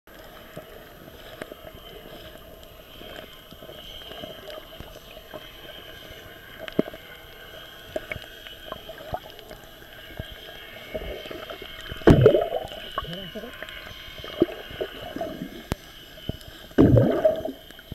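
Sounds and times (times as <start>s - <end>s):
small clicks and knocks underwater: 0.1s - 17.9s
underwater hiss and churn: 0.1s - 17.9s.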